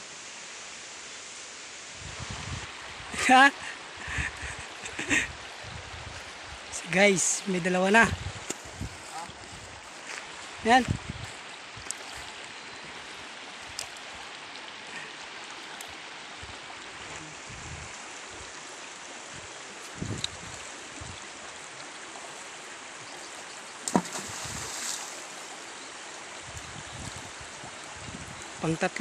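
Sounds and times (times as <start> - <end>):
river running over rocks: 0.0 - 29.0.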